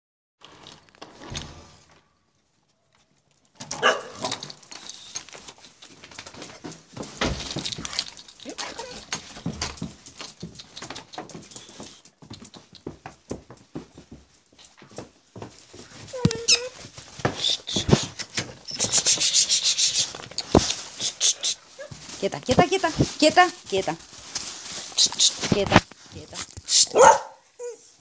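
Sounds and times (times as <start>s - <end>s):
dogs scuffling and clicking: 3.0s - 27.2s
dogs whimpering and yelping: 8.5s - 9.2s, 16.1s - 16.8s, 26.9s - 28.0s.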